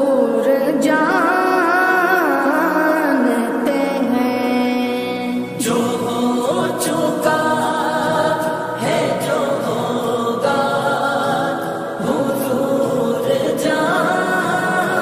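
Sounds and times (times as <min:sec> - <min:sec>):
layered voices singing with reverb: 0:00.0 - 0:15.0.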